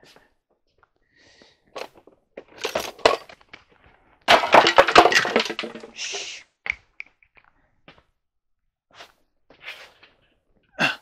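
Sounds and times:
small objects clattering on floor: 1.8 - 7.2.

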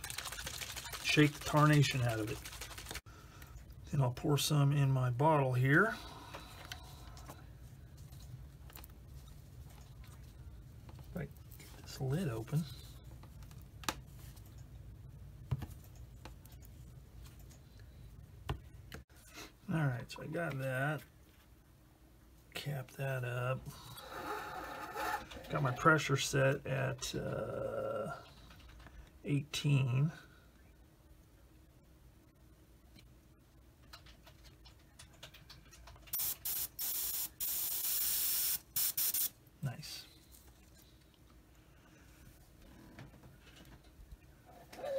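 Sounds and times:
airbrush spraying hiss: 36.2 - 39.3.

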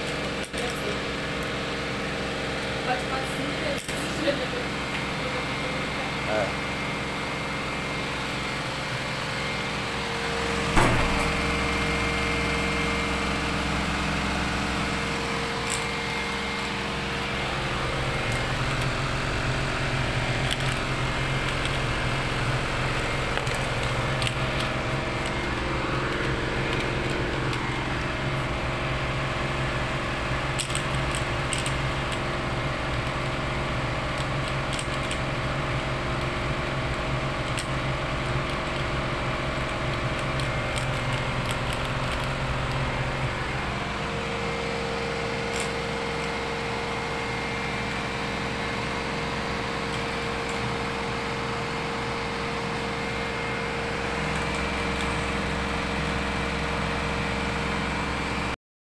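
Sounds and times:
drain pump motor humming: 0.0 - 58.6
sharp knock: 10.7 - 11.3.

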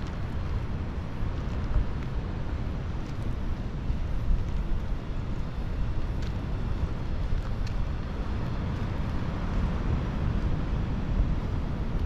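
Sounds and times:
wind gusts rumbling on microphone: 0.0 - 12.0
faint ticks: 2.9 - 9.7.

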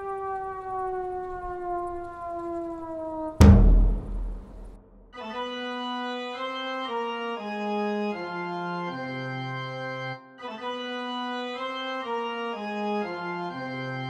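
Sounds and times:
loud crash: 3.4 - 5.1
organ music: 5.2 - 14.0.

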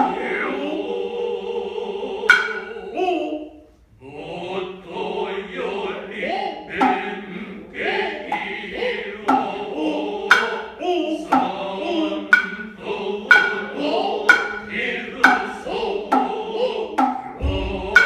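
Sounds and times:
chorus chanting in unison: 0.0 - 18.0
hand drum strikes: 9.3 - 9.5, 13.3 - 13.7, 14.3 - 15.5, 17.0 - 18.0.

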